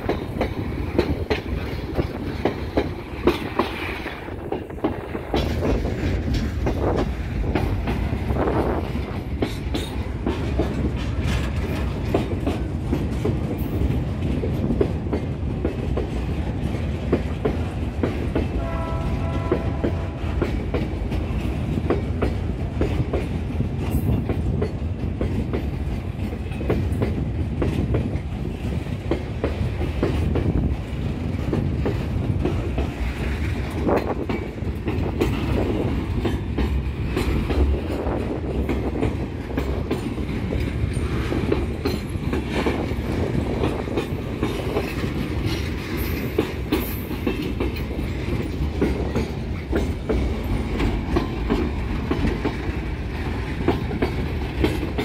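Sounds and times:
freight train rumbling past: 0.0 - 55.0
wheels clacking over rail joints: 0.0 - 55.0.

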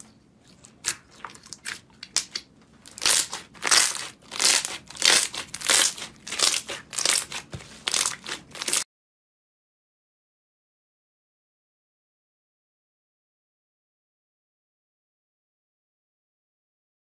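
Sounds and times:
slime crackling and squishing: 0.5 - 8.8.

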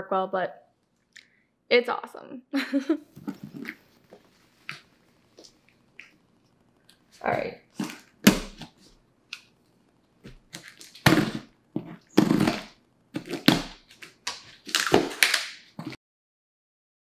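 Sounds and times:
box cutter cutting tape and cardboard: 10.6 - 16.0
cardboard box thunks: 11.0 - 13.8.

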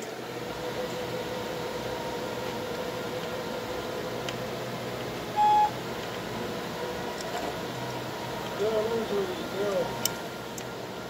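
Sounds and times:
steady background hum: 0.0 - 11.0
short electronic beep: 5.4 - 5.7
faint steady tone: 5.4 - 5.8.

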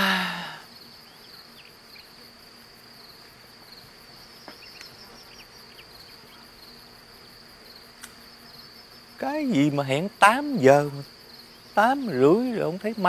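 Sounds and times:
crickets chirping: 0.0 - 13.0.

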